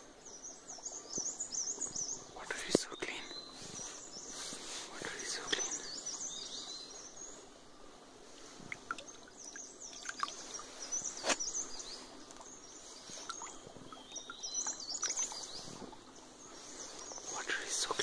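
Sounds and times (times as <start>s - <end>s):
birds chirping: 0.0s - 18.0s
stream trickling: 0.0s - 18.0s
feet splashing through water: 8.6s - 16.1s.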